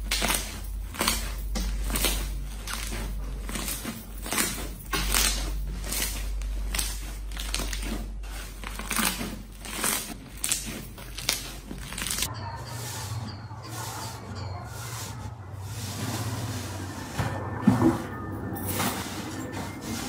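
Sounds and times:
slime crackling squishes: 0.0 - 12.3.

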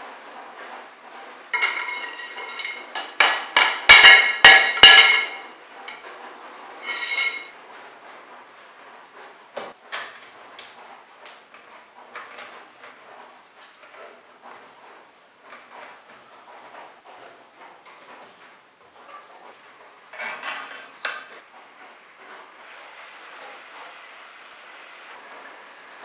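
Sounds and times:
ringing metallic knocks: 1.6 - 5.5.

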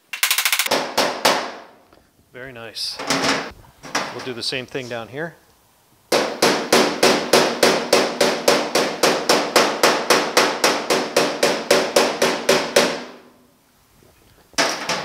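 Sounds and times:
hammer tapping steel panel: 6.1 - 13.3, 14.6 - 15.0.

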